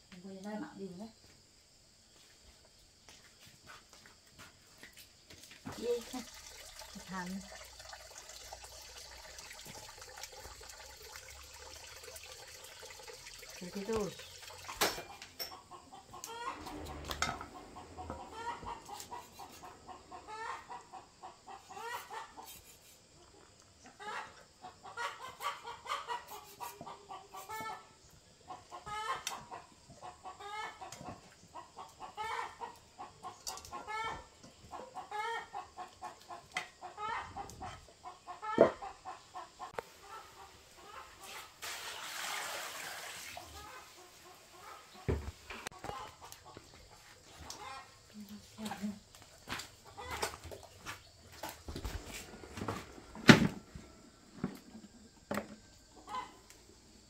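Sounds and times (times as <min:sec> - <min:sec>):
chickens clucking: 0:14.7 - 0:41.6, 0:43.4 - 0:57.0.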